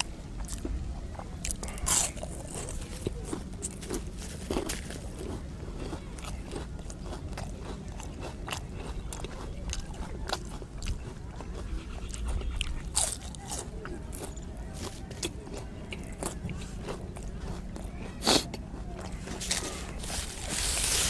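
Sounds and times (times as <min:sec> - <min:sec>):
steady low rumble: 0:00.0 - 0:08.8
person chewing crunchy food: 0:00.0 - 0:21.0.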